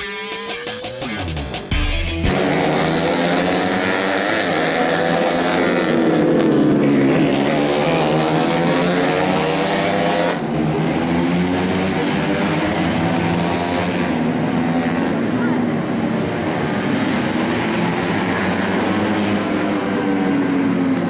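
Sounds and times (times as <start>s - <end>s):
race motorcycles revving: 0.0s - 21.0s.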